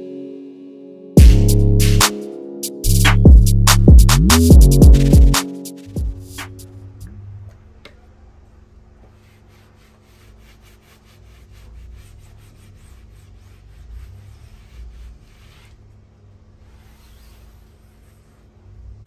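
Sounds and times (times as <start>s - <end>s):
rubbing strokes on surface: 8.9s - 19.0s.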